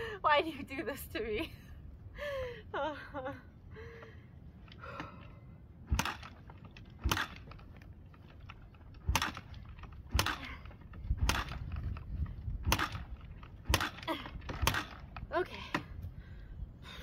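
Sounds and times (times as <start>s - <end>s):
dirt bike kick-start lever kicks: 5.9s - 15.9s.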